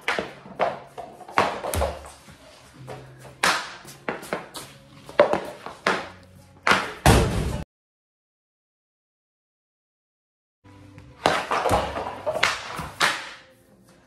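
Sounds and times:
pucks banging off boards: 0.0s - 2.2s, 2.8s - 7.6s, 11.2s - 13.4s
hockey stick clacking pucks: 11.2s - 13.4s.

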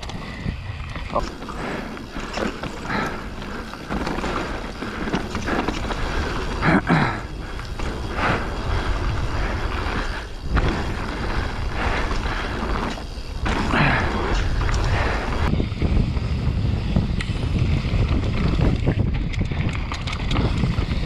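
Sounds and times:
bike rattling over bumps: 0.0s - 21.0s
wind rushing over microphone: 0.0s - 21.0s
tyres crunching over dirt and stones: 0.8s - 15.5s.

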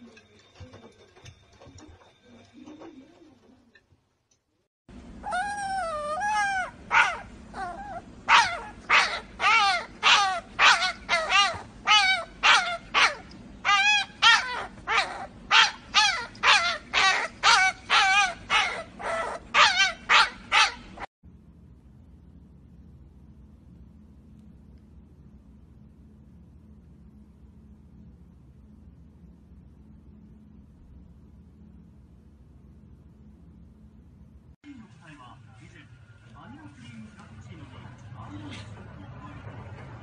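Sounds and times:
puppy crying and yelping: 5.2s - 21.1s.

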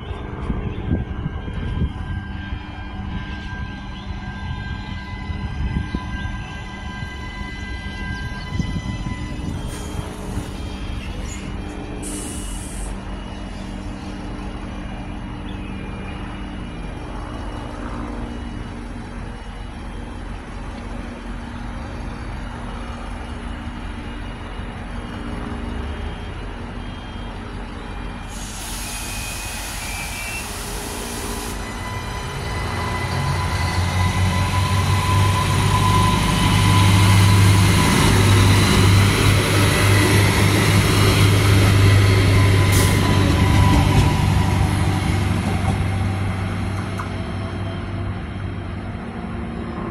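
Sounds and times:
diesel train engines throbbing: 0.0s - 49.9s
air hiss: 12.0s - 13.0s, 28.3s - 31.7s.

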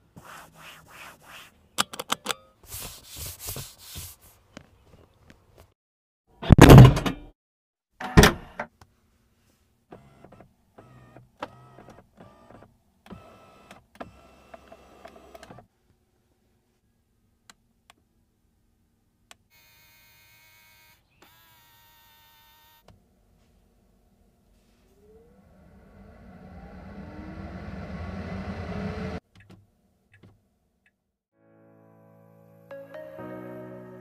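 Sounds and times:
power window motor whirring: 9.9s - 15.6s, 24.8s - 29.2s.

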